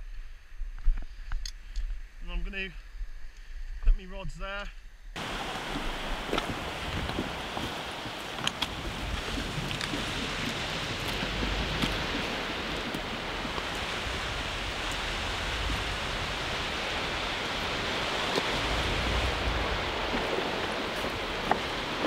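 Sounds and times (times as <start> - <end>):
wind buffeting the microphone: 0.6 - 22.0
surf rushing on rocks: 5.2 - 22.0
stones clicking underfoot: 8.3 - 12.1.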